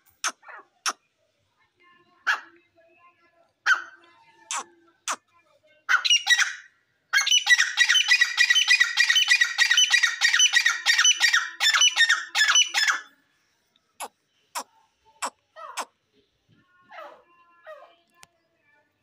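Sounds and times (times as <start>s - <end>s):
bird calling harshly: 4.5s - 5.2s, 5.9s - 13.1s.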